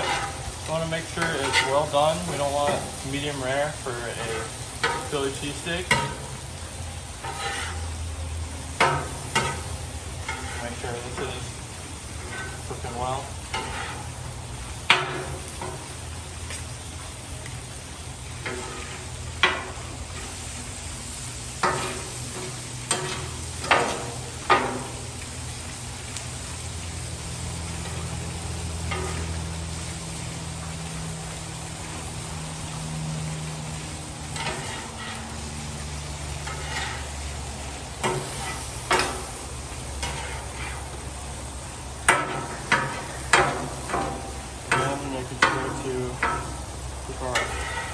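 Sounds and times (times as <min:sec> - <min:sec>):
metal spatula scraping griddle: 0:00.0 - 0:06.4, 0:07.2 - 0:08.1, 0:08.7 - 0:16.0, 0:18.4 - 0:20.5, 0:21.4 - 0:25.2, 0:27.7 - 0:29.9, 0:34.2 - 0:41.0, 0:42.0 - 0:47.9
meat sizzling on griddle: 0:00.0 - 0:47.9.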